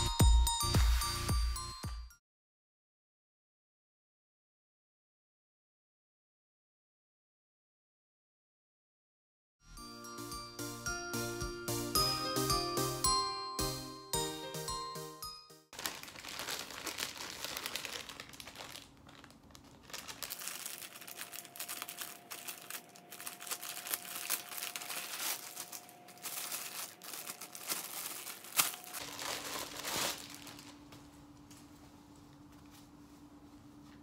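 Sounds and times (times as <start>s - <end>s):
plastic packaging crinkling: 15.8s - 31.6s
scissors cutting plastic: 17.9s - 30.6s.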